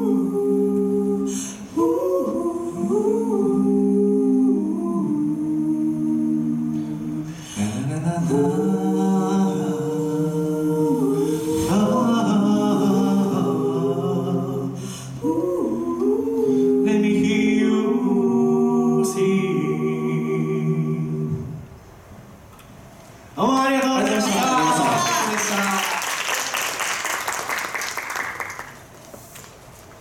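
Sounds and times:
a cappella group singing harmony: 0.0 - 21.9.

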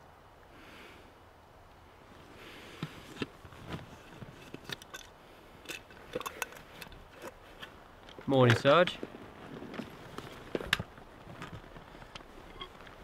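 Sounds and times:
helmet and kit clicking: 2.8 - 13.0.

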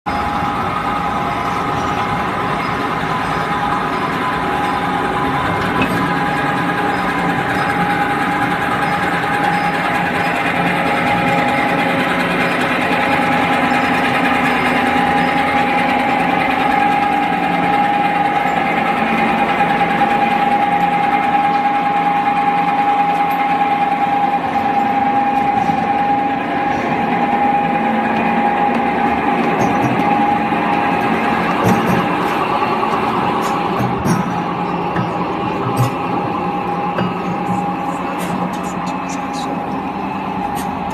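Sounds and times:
roll forming machine running: 0.1 - 40.9.

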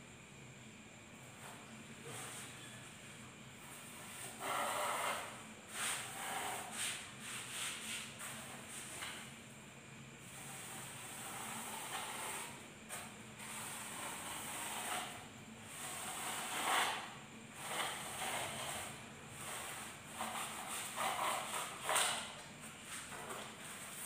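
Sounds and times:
knife cutting styrofoam: 15.8 - 22.4.

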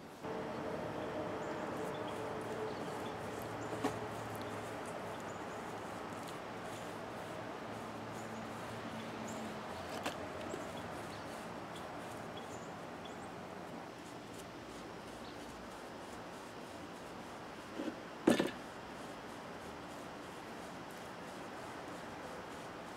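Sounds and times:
quiet handling noises: 0.2 - 12.3.

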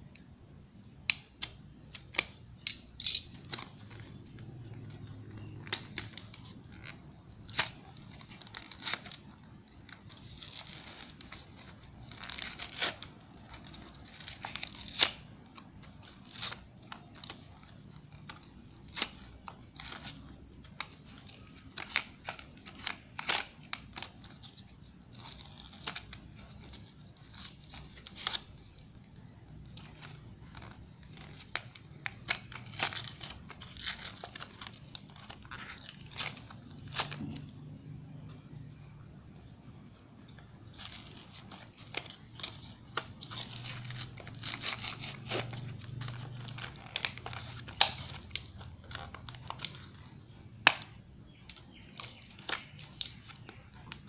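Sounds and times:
plastic crinkling: 0.8 - 54.0
cardboard packaging tearing: 1.1 - 37.8, 40.4 - 54.0.

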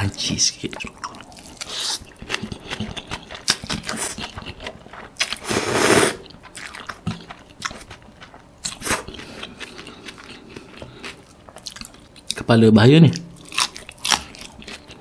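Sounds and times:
chewing and biting noodles: 1.0 - 5.6, 6.2 - 12.4, 13.4 - 15.0
slurping noodles: 5.4 - 6.3.

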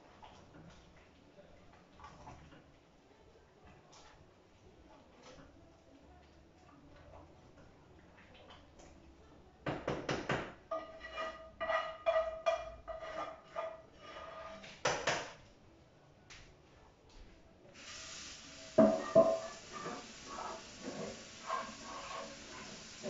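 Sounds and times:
spoon stirring in metal pot: 10.7 - 14.9, 18.7 - 23.0
running tap water: 17.8 - 23.0
utensil clanking: 18.7 - 23.0
pot lid clattering: 18.8 - 20.0.

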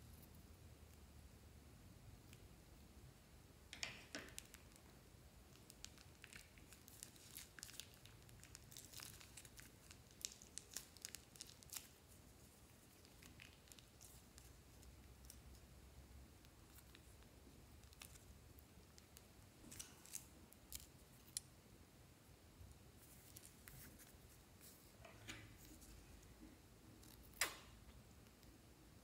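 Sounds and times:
plastic bag crinkling: 5.5 - 14.5.

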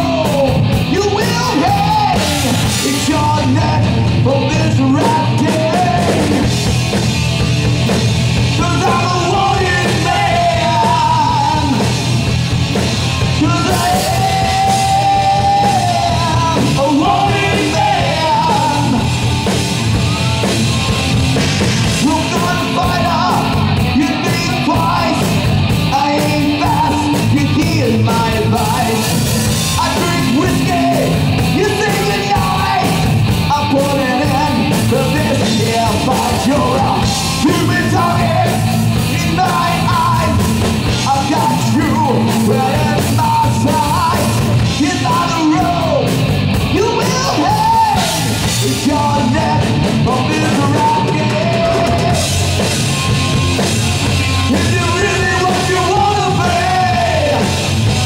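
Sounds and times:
man singing into microphone: 0.0 - 6.5, 8.6 - 11.8, 13.4 - 19.1, 22.0 - 25.3, 25.9 - 29.1, 29.7 - 46.1, 46.7 - 52.3, 54.5 - 57.6
drum kit: 0.0 - 58.0
electric guitar: 0.0 - 58.0.

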